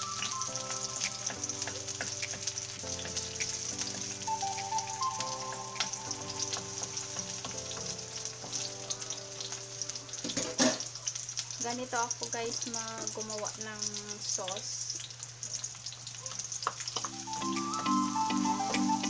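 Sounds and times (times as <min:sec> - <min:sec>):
background music: 0:00.0 - 0:10.1, 0:17.1 - 0:19.0
onion and garlic sizzling in oil: 0:00.0 - 0:19.0.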